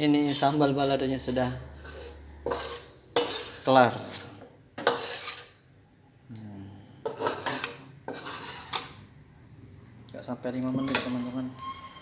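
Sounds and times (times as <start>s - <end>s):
metal spatula scraping a wok: 0.0s - 5.6s, 7.0s - 9.1s, 10.8s - 12.0s.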